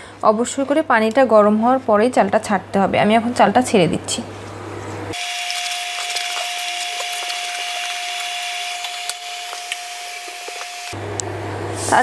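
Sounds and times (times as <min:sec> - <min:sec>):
steady high whine: 0:05.2 - 0:11.2.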